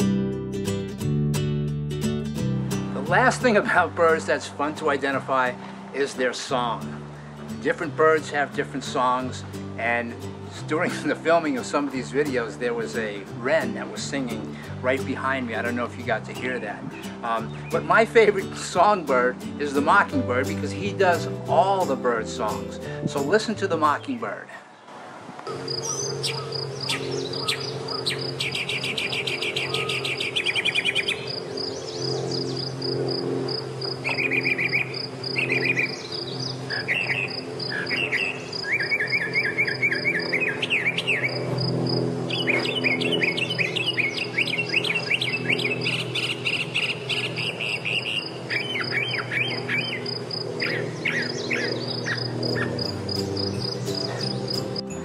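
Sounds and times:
mockingbird singing: 14.0 - 19.0, 25.6 - 55.0
high pulsing chirp: 25.5 - 55.0.

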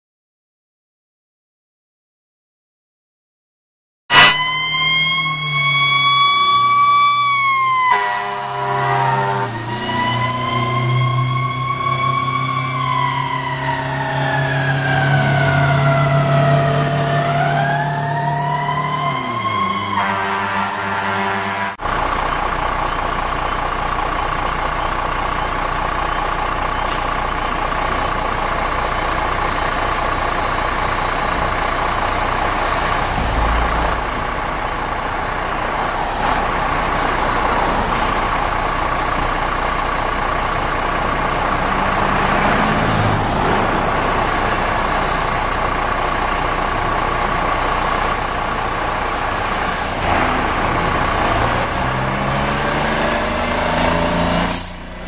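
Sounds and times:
fire engine diesel engine: 4.1 - 55.0
air brake hisses: 37.0 - 37.5, 54.4 - 54.9.

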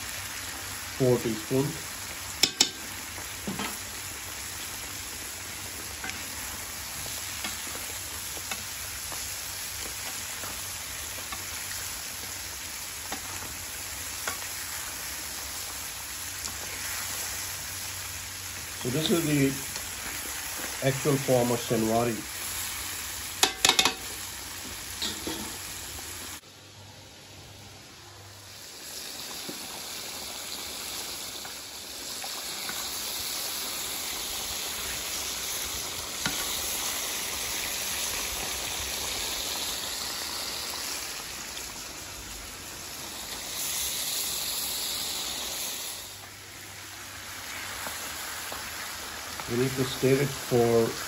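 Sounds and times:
meat sizzling in hot oil: 0.0 - 26.4, 27.8 - 51.0
spatula clinking against pan: 2.4 - 2.8, 23.4 - 24.0.

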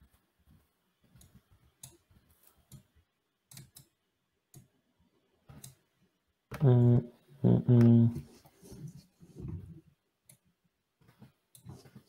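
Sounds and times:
faint keyboard clicks: 3.5 - 4.7.

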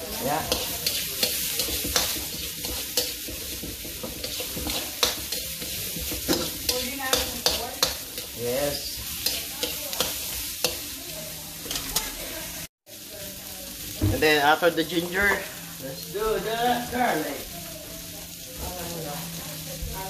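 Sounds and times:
onion sizzling in hot oil: 0.0 - 20.0
spatula scraping wok: 0.0 - 20.0
utensil clicking against pan: 0.5 - 8.3.

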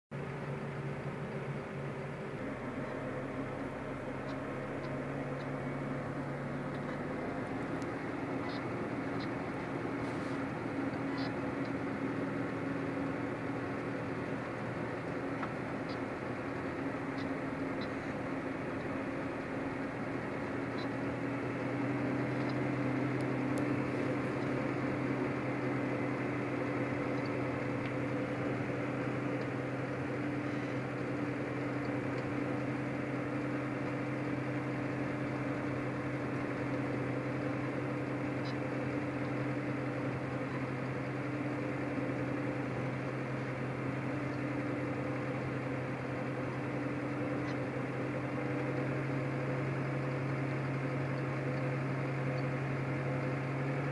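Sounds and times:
tractor diesel engine droning: 0.1 - 53.9.

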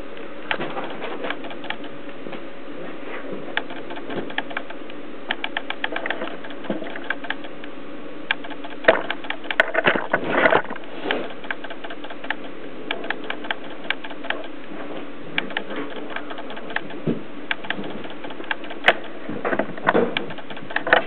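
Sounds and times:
steady low hum: 0.0 - 21.0
camcorder focus motor clicking: 8.3 - 9.6.

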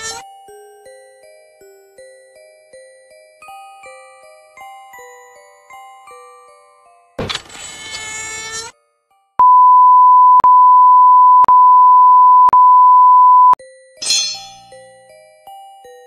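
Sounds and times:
steady electronic beep tone: 9.4 - 13.6.

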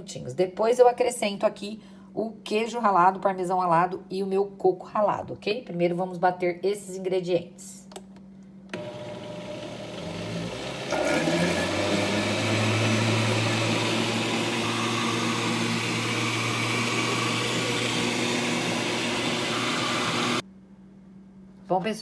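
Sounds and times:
blender motor running: 8.7 - 20.4.

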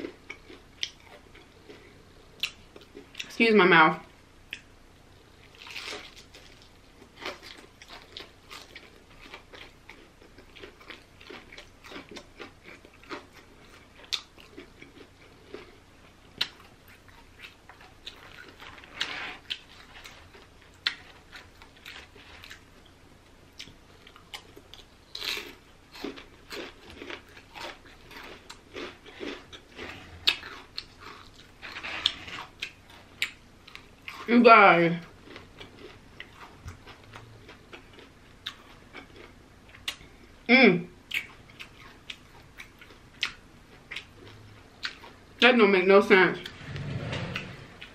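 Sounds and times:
person chewing crispy chicken: 0.0 - 3.3, 5.4 - 22.7, 23.6 - 34.3, 35.0 - 40.3, 41.1 - 45.2.

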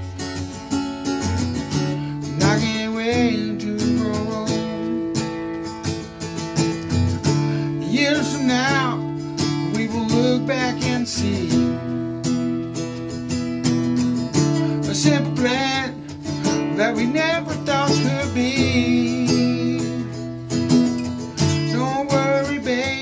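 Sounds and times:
acoustic guitar strumming: 0.0 - 23.0
man singing: 2.2 - 5.4, 7.6 - 12.5, 14.5 - 20.6, 21.3 - 23.0.

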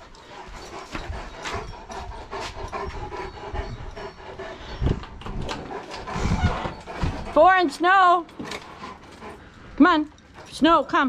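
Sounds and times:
dog panting hard: 0.0 - 10.6.

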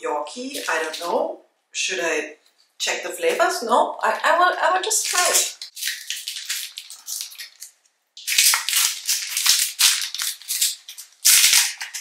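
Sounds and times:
plastic wrapper crinkling and tearing: 0.5 - 1.2, 4.9 - 12.0.

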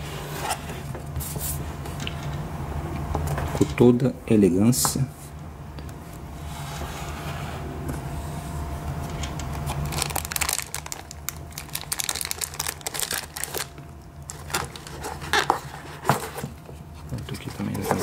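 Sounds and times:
steady low hum: 0.0 - 18.0
plastic bag crinkling: 9.5 - 15.1.

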